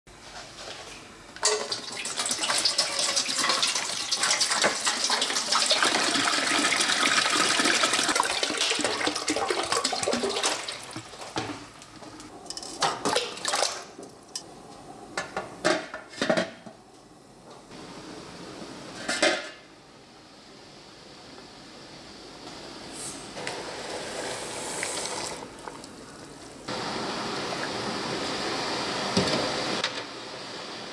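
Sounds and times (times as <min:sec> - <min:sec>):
water pouring into metal pot: 0:01.5 - 0:11.4.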